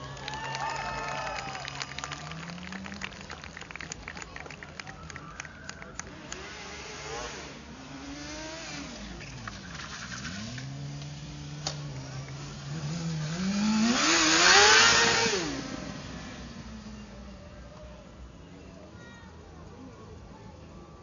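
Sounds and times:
motorcycle engine revving: 6.1 - 17.5.

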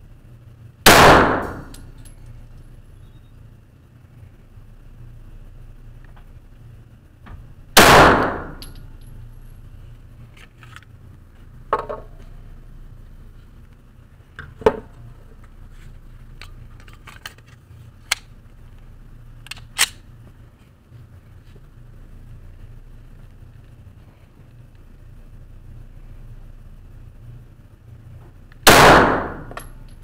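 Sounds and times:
pistol shots echoing: 0.9 - 1.7, 7.8 - 8.7, 28.7 - 29.6.

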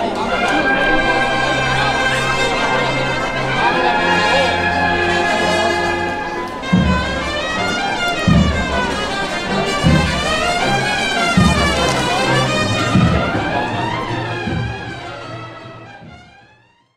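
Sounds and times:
cornets playing slow march: 0.0 - 16.7
bass drum beats: 6.6 - 16.4.

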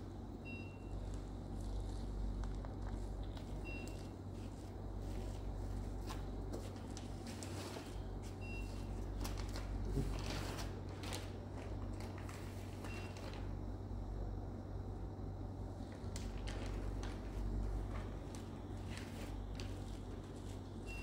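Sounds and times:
steady low hum: 0.0 - 21.0
paper and packaging rustle: 1.6 - 13.5, 15.9 - 20.8.

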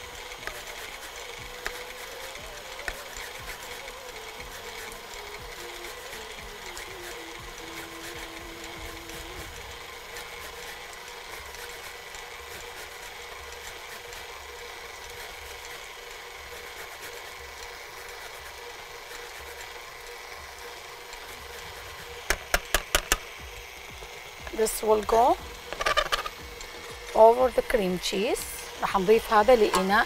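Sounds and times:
steady low hum: 0.0 - 30.0
lemon scratching on grater: 0.3 - 14.4, 24.9 - 26.4.

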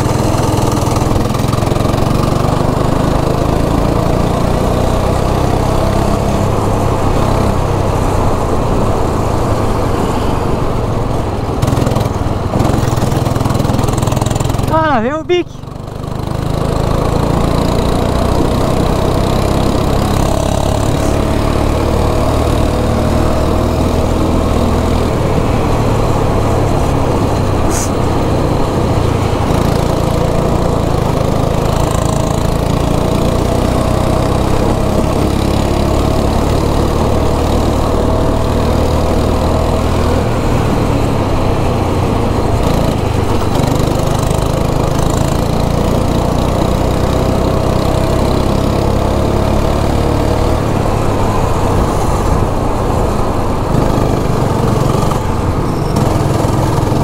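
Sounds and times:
kart engine running: 0.0 - 57.0.

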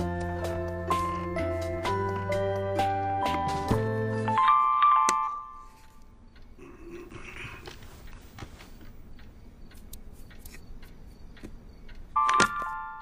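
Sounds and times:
soft rustle: 7.7 - 9.0.

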